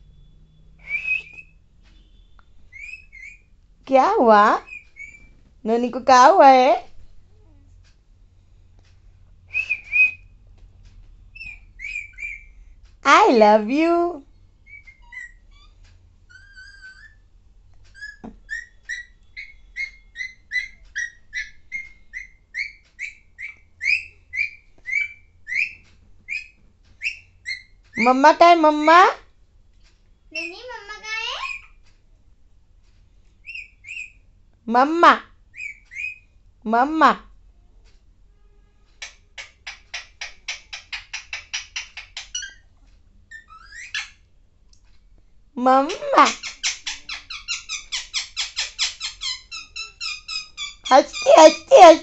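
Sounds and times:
parakeet chirping calls: 0:00.9 - 0:03.5, 0:04.6 - 0:05.4, 0:11.3 - 0:12.8, 0:14.6 - 0:17.3, 0:17.9 - 0:29.2, 0:30.3 - 0:31.8, 0:33.4 - 0:34.2, 0:35.5 - 0:36.4, 0:39.0 - 0:42.7, 0:43.3 - 0:44.3, 0:45.8 - 0:52.0
parakeet gliding calls: 0:04.6 - 0:05.3, 0:45.9 - 0:52.0.

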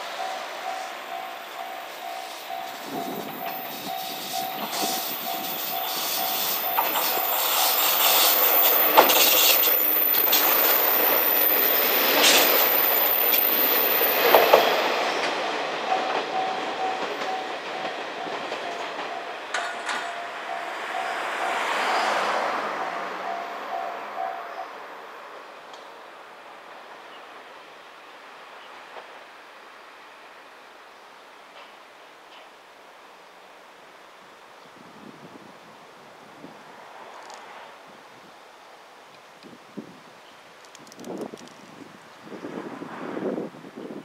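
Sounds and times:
diesel railcar passing: 0:00.0 - 0:40.2, 0:41.0 - 0:44.0
wheels clacking over rail joints: 0:00.2 - 0:24.3.

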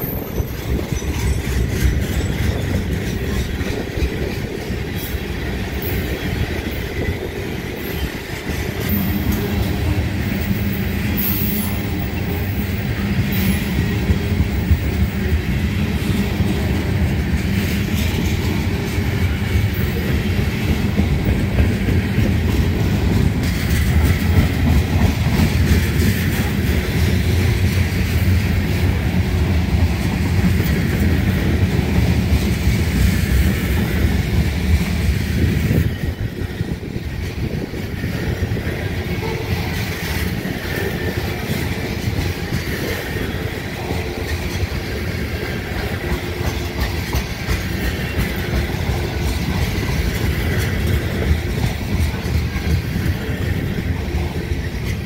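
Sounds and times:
freight train rumble: 0:00.0 - 0:55.0
train wheels clicking over rail joints: 0:00.0 - 0:55.0.

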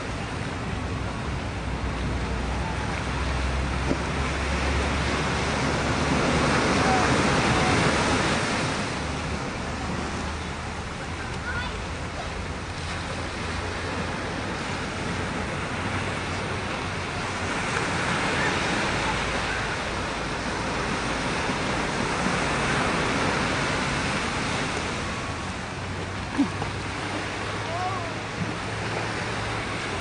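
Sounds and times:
small waves breaking: 0:00.0 - 0:30.0.

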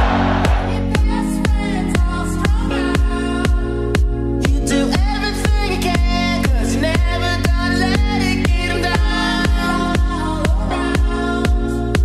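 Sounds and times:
electronic dance music: 0:00.0 - 0:02.6.

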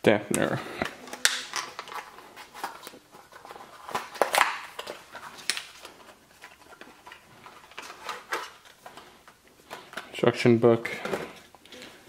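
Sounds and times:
packaging rustling: 0:00.8 - 0:10.3.

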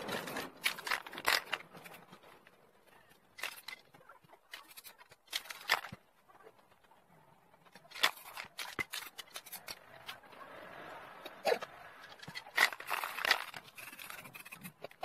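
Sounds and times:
newspaper crinkling: 0:00.0 - 0:02.5, 0:07.8 - 0:10.2, 0:12.2 - 0:14.8.

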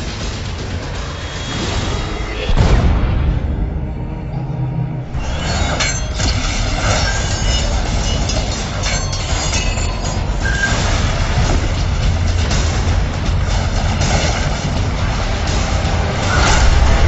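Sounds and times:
rushing noise: 0:00.0 - 0:17.0
low held tone: 0:03.6 - 0:10.8
sharp fight hits and whooshes: 0:05.2 - 0:17.0.

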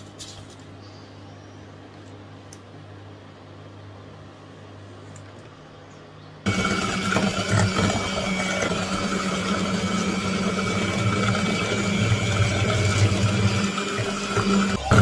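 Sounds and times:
electric hand mixer whirring: 0:06.5 - 0:15.0.

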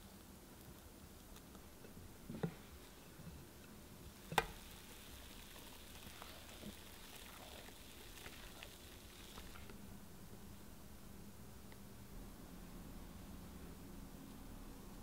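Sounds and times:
batter pouring into pan: 0:04.1 - 0:09.7.

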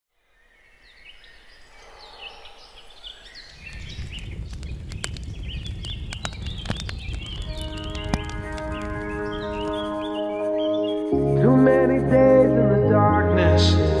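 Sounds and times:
birds chirping: 0:00.2 - 0:12.7
sharp clicks: 0:03.5 - 0:10.1.

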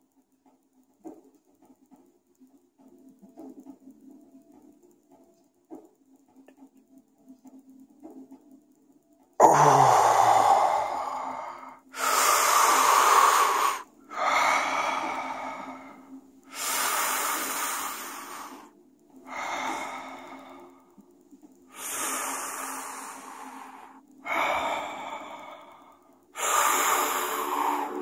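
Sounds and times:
person breathing heavily: 0:09.4 - 0:21.0, 0:21.7 - 0:28.0.

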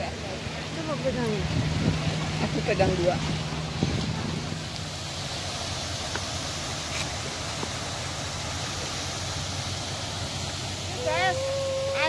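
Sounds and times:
stream flowing over rocks: 0:00.0 - 0:12.0.

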